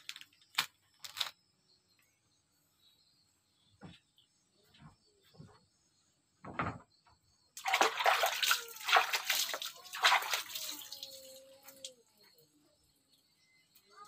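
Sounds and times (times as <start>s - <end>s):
thump: 6.4s - 6.9s
running splashing water: 7.6s - 12.0s.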